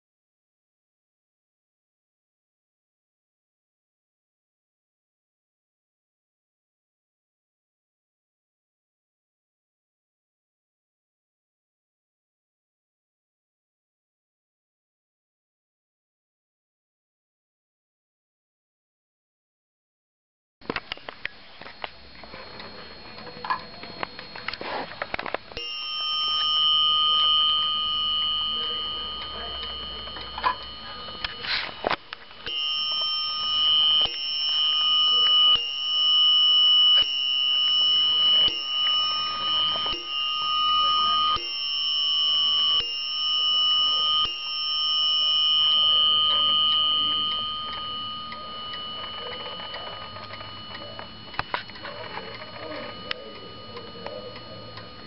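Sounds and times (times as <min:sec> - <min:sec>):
clock bell striking: 0:25.6 - 0:55.0
wall clock ticking: 0:25.6 - 0:55.0.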